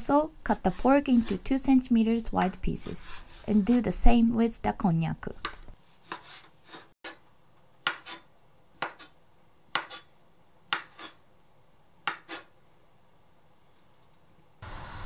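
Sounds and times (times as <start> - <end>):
knife cutting on board: 5.4 - 7.2, 9.8 - 10.1, 10.7 - 11.2, 12.0 - 12.5.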